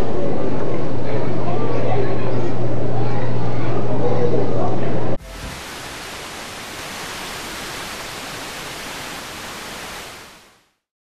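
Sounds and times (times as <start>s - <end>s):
static hiss: 5.2s - 10.8s.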